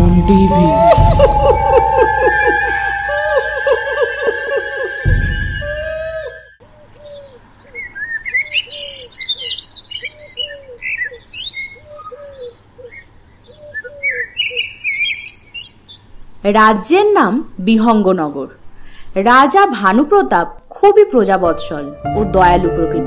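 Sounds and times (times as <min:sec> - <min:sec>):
loud low swoosh: 0:00.0 - 0:06.5
birds chirping and twittering: 0:00.9 - 0:18.2.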